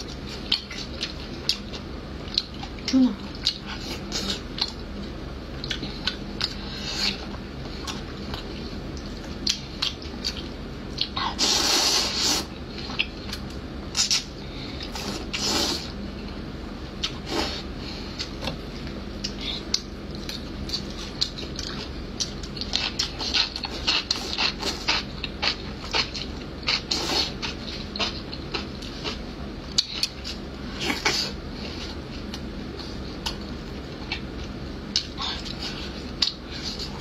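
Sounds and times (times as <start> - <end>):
noodle slurping: 11.3 - 12.5
wet chewing: 18.2 - 37.0.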